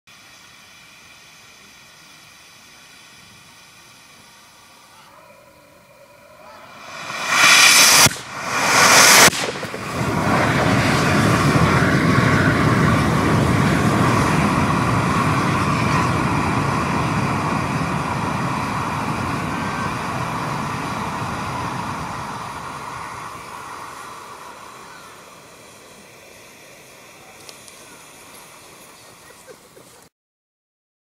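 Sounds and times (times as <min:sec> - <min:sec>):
sharp hiss: 0:00.1 - 0:30.1
rocket motor rushing burn: 0:05.5 - 0:30.1.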